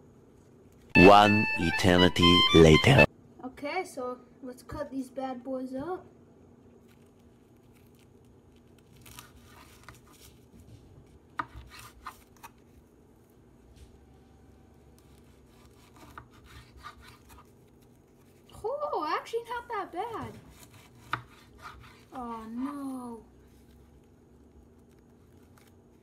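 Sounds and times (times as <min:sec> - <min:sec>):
knife sawing through sushi roll: 0:15.1 - 0:17.4, 0:20.4 - 0:22.4.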